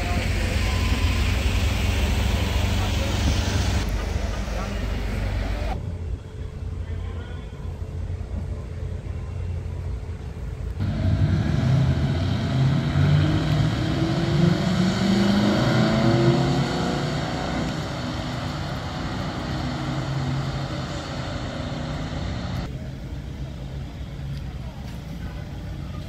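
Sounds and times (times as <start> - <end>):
cars driving past revving: 0.0 - 5.8, 10.8 - 22.7.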